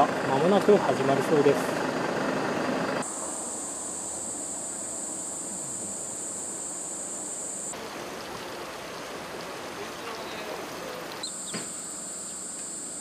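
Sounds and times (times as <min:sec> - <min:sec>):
insect chirring: 0:03.0 - 0:13.0
steady hiss: 0:03.0 - 0:13.0.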